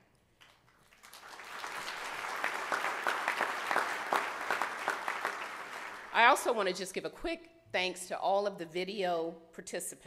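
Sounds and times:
audience applauding: 0.4s - 6.4s.

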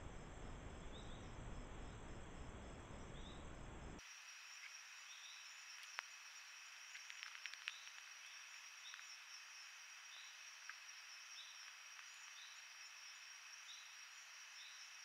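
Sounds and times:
insect chirp: 0.0s - 15.0s
insects droning: 0.0s - 15.0s
small clicks: 6.9s - 9.1s.

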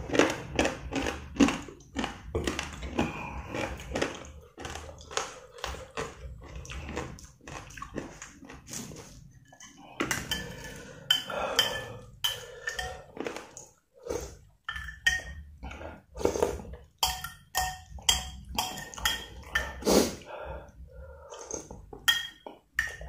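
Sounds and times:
spoon clinking against bowl: 10.1s - 13.0s, 14.7s - 15.5s, 17.0s - 19.8s, 22.0s - 23.0s.

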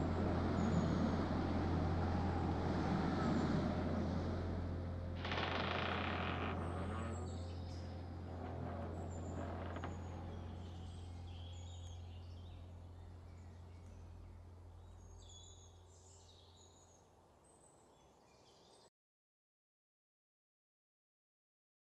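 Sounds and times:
low steady hum: 0.0s - 17.6s
birds chirping: 5.2s - 17.1s.

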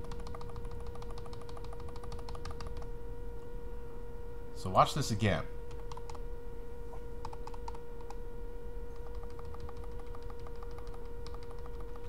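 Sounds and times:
computer keys clicking: 0.0s - 2.9s, 5.7s - 6.2s, 7.2s - 8.2s, 9.0s - 12.0s
steady hum: 0.0s - 12.0s.

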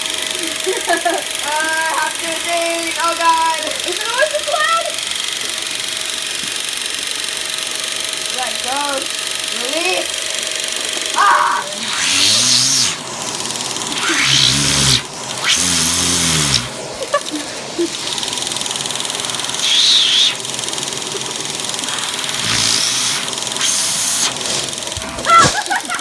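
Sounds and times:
vacuum cleaner motor whine: 0.0s - 26.0s
vacuum suction rushing: 10.2s - 25.3s
muffled vocal sounds through hose: 11.2s - 13.0s, 14.0s - 16.8s, 19.6s - 20.4s, 21.9s - 24.4s.

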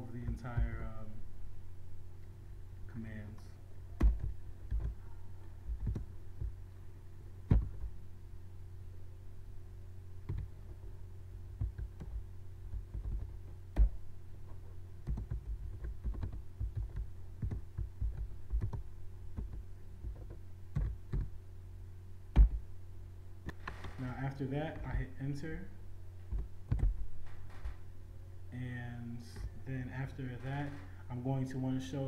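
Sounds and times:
low steady hum: 0.0s - 32.0s
typing on computer keyboard: 5.7s - 6.1s, 15.0s - 18.8s.

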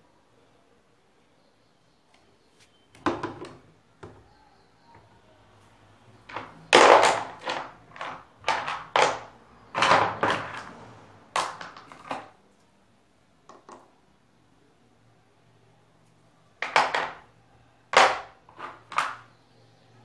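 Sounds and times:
pebbles knocking and clattering: 6.2s - 10.8s, 11.4s - 12.4s, 16.6s - 17.3s, 18.0s - 19.3s.

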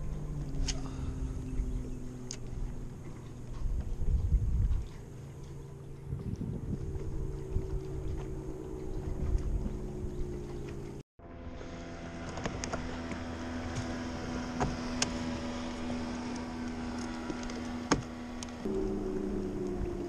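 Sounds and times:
wind buffeting microphone: 0.0s - 11.0s
boat motor running: 0.0s - 20.0s.

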